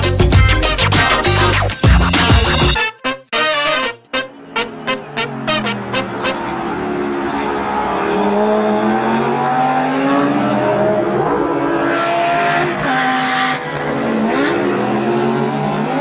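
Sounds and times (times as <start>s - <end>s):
race car engines revving: 4.0s - 16.0s.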